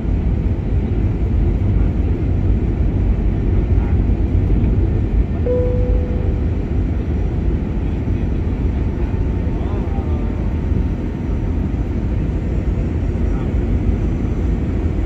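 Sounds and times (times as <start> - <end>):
airliner cabin engine rumble: 0.0 - 15.0
short clear tone: 5.5 - 6.8.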